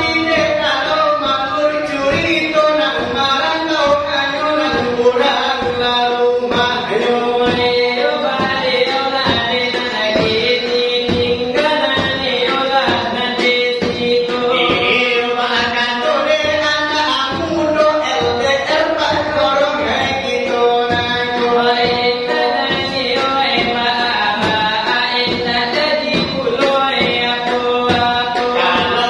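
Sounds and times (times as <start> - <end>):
person singing ornamented melody: 14.3 - 15.4.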